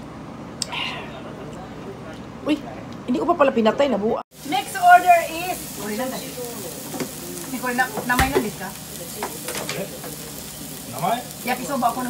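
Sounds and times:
food sizzling on a griddle: 0:04.3 - 0:12.0.

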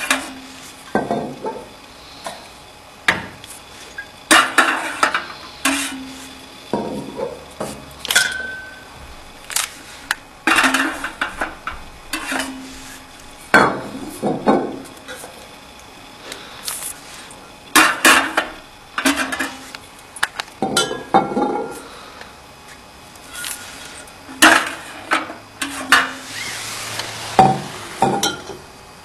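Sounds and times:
glass bottles clinking: 0:08.1 - 0:08.8, 0:20.6 - 0:21.8, 0:27.4 - 0:28.6.

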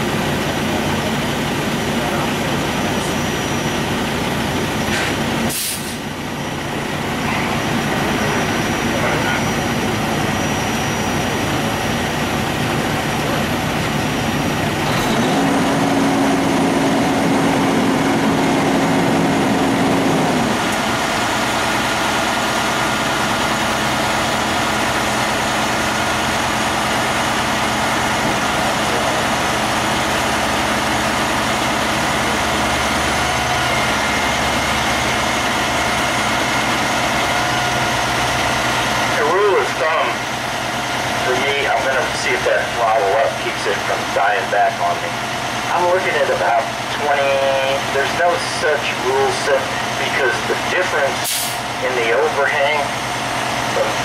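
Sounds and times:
diesel engine idling: 0:00.0 - 0:54.0
short sharp hiss: 0:04.9 - 0:06.0, 0:51.2 - 0:51.6.

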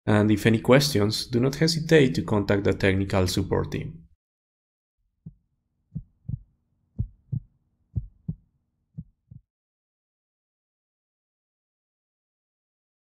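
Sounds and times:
heartbeat thumps: 0:05.2 - 0:08.4, 0:09.0 - 0:09.5.

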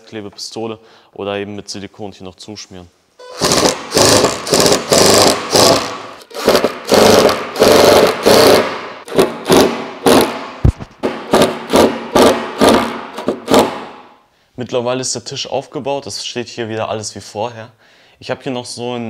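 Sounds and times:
drill driving screws into wood: 0:03.3 - 0:10.5, 0:11.3 - 0:14.0.

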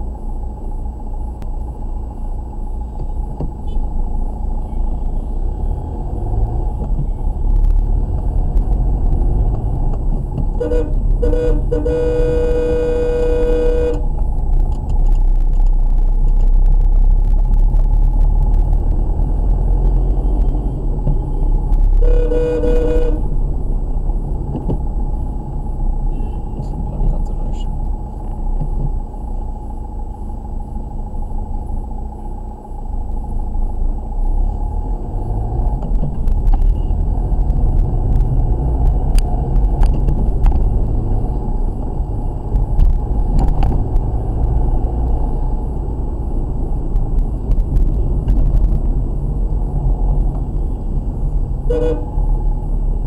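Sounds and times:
car driving rumble: 0:00.0 - 0:53.0
car horn honking: 0:10.6 - 0:14.1, 0:21.3 - 0:23.4, 0:26.1 - 0:26.6, 0:51.6 - 0:52.4.

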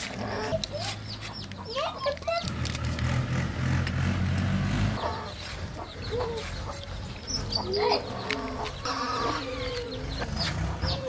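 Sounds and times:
chickens clucking: 0:00.0 - 0:02.4, 0:05.0 - 0:11.0
low engine hum: 0:02.4 - 0:07.6.

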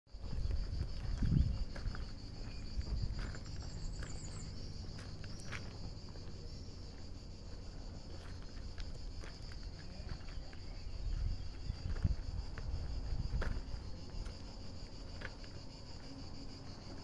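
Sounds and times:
high-pitched insect chorus: 0:00.1 - 0:17.0.

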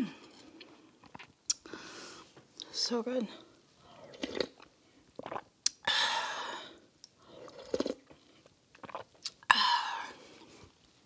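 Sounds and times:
loud sipping: 0:04.0 - 0:05.8.

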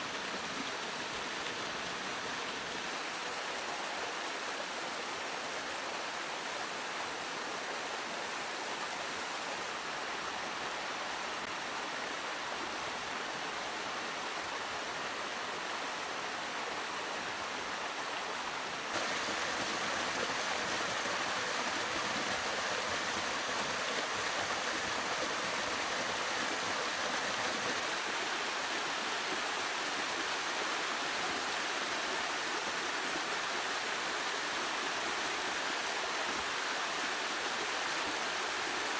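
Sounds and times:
stream rushing over rocks: 0:00.0 - 0:38.9.

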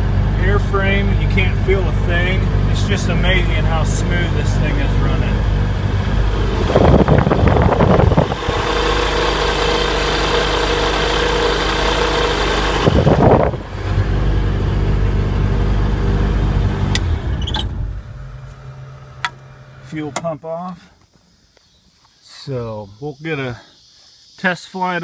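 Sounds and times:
aircraft engine running: 0:00.0 - 0:19.5
engine winding down: 0:00.0 - 0:19.9.

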